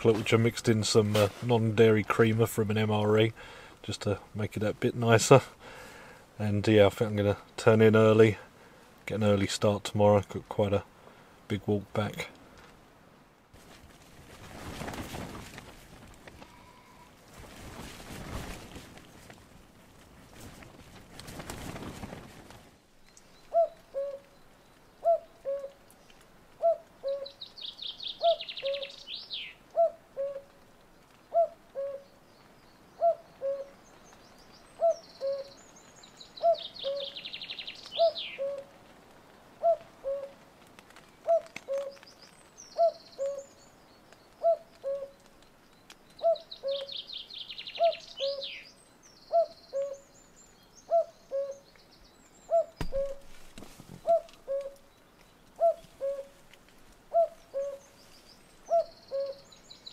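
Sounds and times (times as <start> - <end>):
songbird trill: 23.0 - 30.5, 31.3 - 38.6, 41.3 - 56.4, 57.1 - 59.9
cuckoo calling: 23.5 - 24.4, 25.0 - 25.8, 26.6 - 30.6, 31.3 - 32.2, 33.0 - 33.9, 34.7 - 35.7, 36.4 - 38.7, 39.6 - 40.4, 41.2 - 45.3, 46.2 - 50.2, 50.8 - 53.4, 54.0 - 56.5, 57.1 - 59.8.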